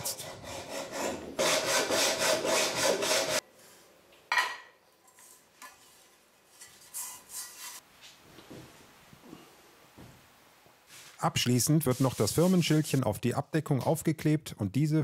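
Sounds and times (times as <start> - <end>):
hacksaw cutting sheet metal: 0.1 - 3.4.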